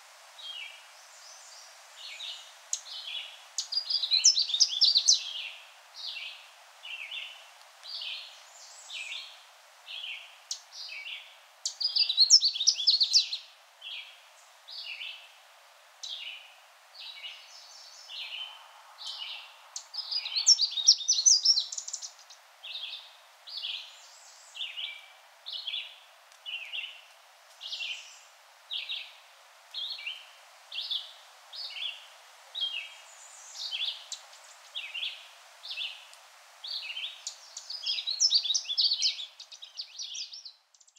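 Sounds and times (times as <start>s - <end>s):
rapid jumbled birdsong burst: 16.0s - 29.2s, 29.8s - 40.9s.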